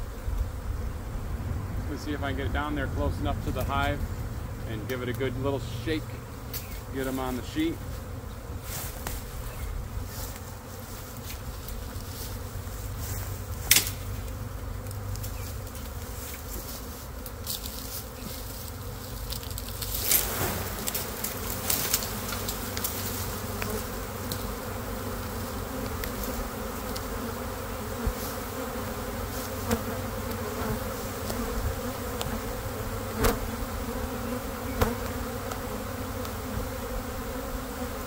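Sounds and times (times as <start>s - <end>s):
bee swarm buzzing: 0.0s - 38.0s.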